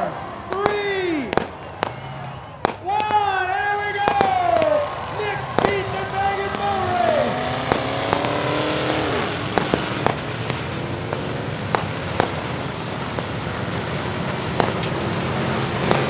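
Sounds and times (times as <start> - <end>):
many race car engines: 0.0 - 16.0
engine cracks and pops: 5.4 - 16.0.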